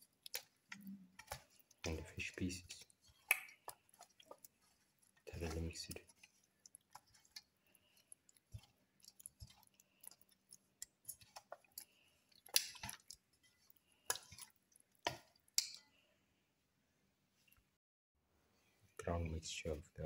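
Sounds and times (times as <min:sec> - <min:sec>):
hand squelching wet fish: 0:00.0 - 0:15.8.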